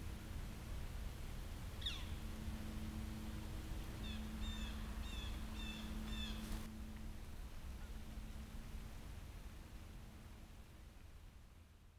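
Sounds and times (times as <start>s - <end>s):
steady low hum: 0.0s - 11.9s
bird calling with nasal notes: 1.8s - 2.3s, 3.8s - 6.7s.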